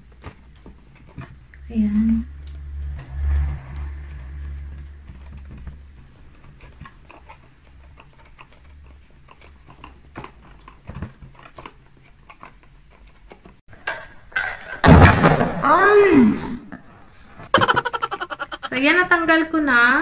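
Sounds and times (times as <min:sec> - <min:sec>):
plastic clicks and scratches: 0:03.7 - 0:13.6.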